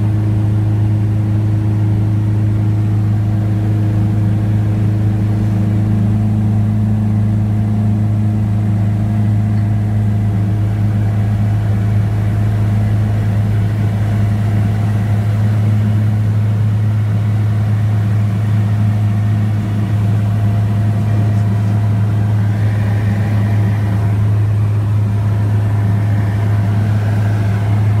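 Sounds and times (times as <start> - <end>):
plane engine and propeller droning: 0.0 - 28.0.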